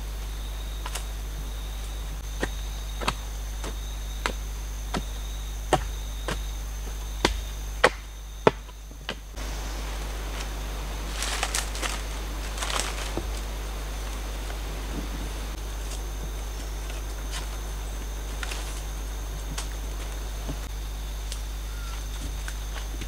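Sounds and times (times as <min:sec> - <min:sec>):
jungle insects buzzing: 0:00.0 - 0:23.0
bamboo clicks and rustling: 0:00.8 - 0:01.2, 0:09.0 - 0:23.0
sharp knocks packing earth: 0:02.4 - 0:06.5, 0:07.2 - 0:09.4.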